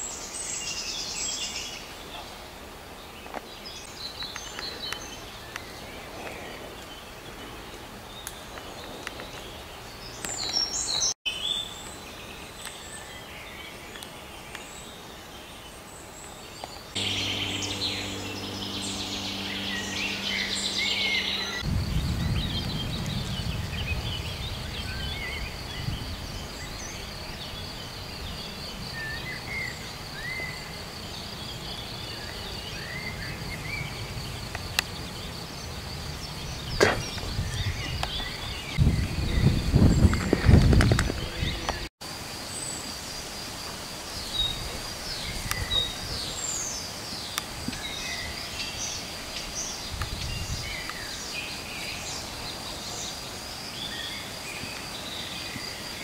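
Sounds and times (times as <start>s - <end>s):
birds chirping and trilling: 0.0s - 41.9s
fast-pulsing high chirring: 17.0s - 21.6s
steady low hum: 17.0s - 24.7s
wind on microphone: 17.0s - 28.6s, 35.8s - 41.9s, 49.8s - 51.1s.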